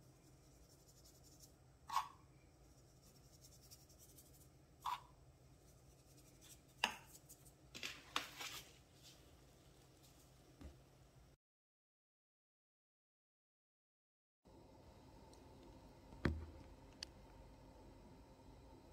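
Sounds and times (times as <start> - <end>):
scratchy rubbing: 0.1 - 7.5.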